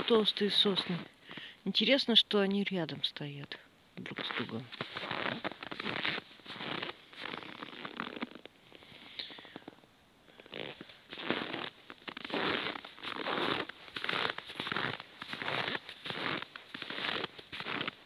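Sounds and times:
footsteps crunching in snow: 0.0s - 1.1s, 4.0s - 8.8s, 10.4s - 18.0s.

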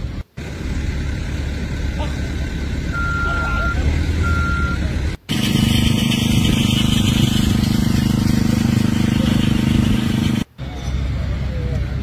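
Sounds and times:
engine hum: 0.0s - 12.0s
reversing alarm beeps: 2.9s - 4.9s.

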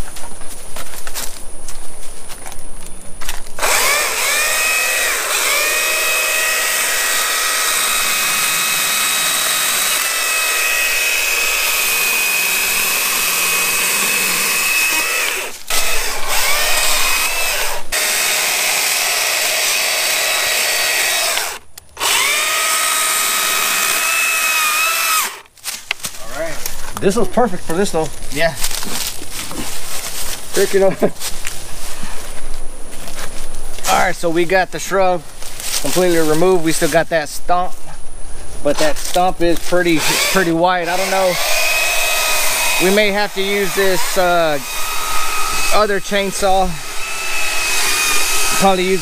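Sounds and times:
electric chainsaw cutting wood: 3.6s - 25.6s, 39.8s - 49.0s.

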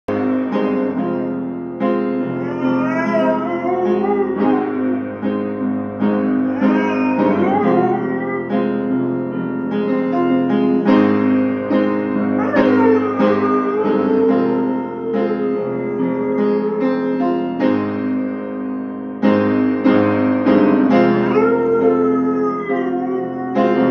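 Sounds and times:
dog howling: 2.3s - 5.2s, 6.2s - 8.7s, 12.3s - 17.6s, 21.3s - 23.9s.

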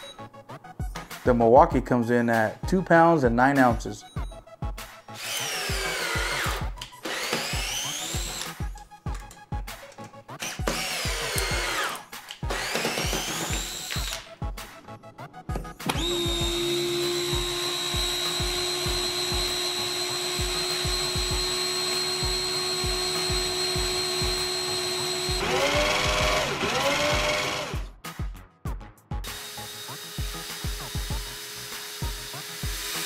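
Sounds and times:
background music with steady beat: 0.0s - 33.0s
drill running free high whine: 5.1s - 8.6s, 10.4s - 14.3s, 15.9s - 27.8s, 29.2s - 33.0s
cordless drill driving screws: 5.2s - 8.6s, 10.4s - 14.3s, 15.8s - 27.8s, 29.3s - 33.0s.

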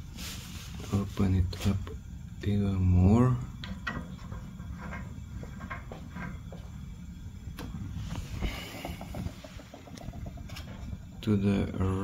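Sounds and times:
small clicks and knocks: 3.6s - 6.6s.

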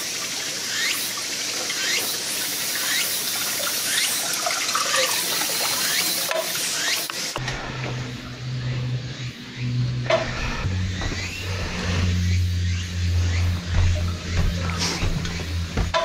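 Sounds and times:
water trickling into pond: 0.0s - 7.4s
low steady hum: 7.4s - 16.0s.

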